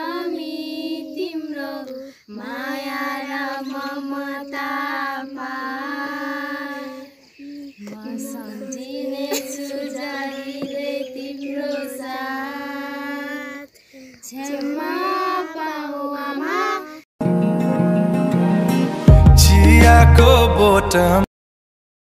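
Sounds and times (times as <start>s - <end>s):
girls singing together: 0.0s - 17.1s.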